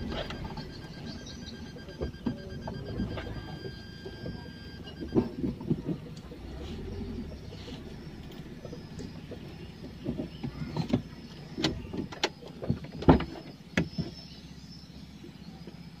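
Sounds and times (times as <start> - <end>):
clicks and knocks inside car: 0.0 - 6.5, 8.5 - 14.4
low steady hum: 0.0 - 16.0.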